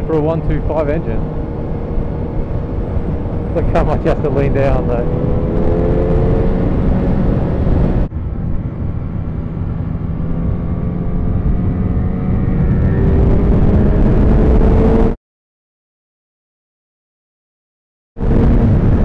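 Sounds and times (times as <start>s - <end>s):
motorcycle engine running: 0.0s - 15.0s
wind rush: 0.0s - 15.2s, 18.2s - 19.0s.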